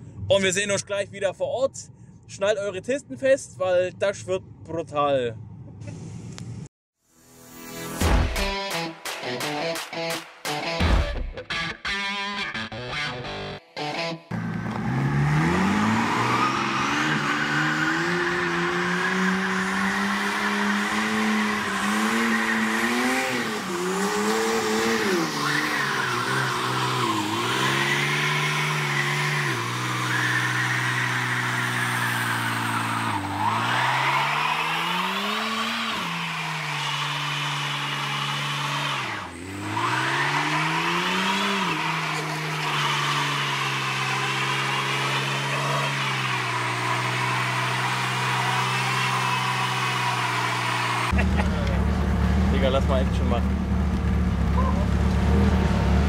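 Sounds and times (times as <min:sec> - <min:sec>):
car engine at high revs: 0:14.3 - 0:56.0
tyres spinning and squealing: 0:14.9 - 0:51.2.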